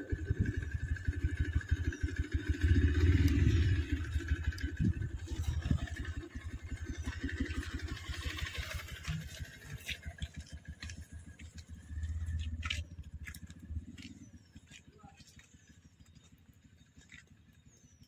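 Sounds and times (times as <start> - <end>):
small engine idling: 0.0 - 18.0.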